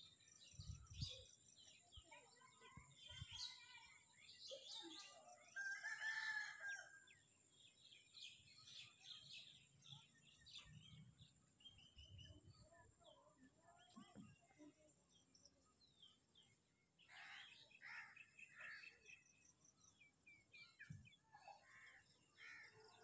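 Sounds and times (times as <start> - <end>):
small birds chirping: 0.0 - 6.4, 7.1 - 23.0.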